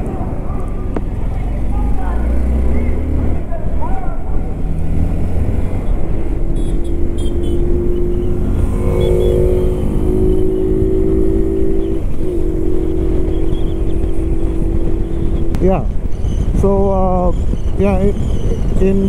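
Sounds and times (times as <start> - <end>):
motorcycle engine cruising: 0.0 - 18.9
wind rush: 4.2 - 19.0.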